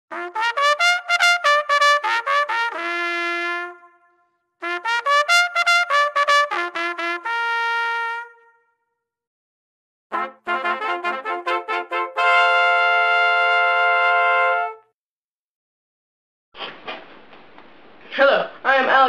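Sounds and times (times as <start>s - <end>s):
trumpet playing: 0.1s - 8.8s, 10.1s - 15.0s.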